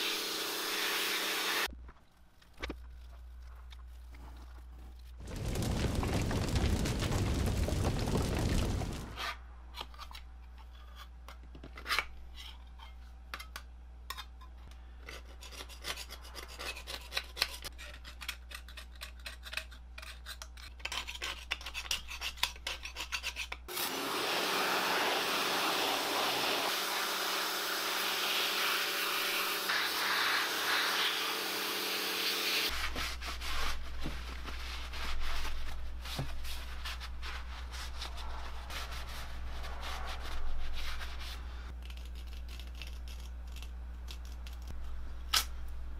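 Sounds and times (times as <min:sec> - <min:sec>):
water jet spraying: 0:23.8 - 0:32.6
rubbing and wiping: 0:32.7 - 0:41.7.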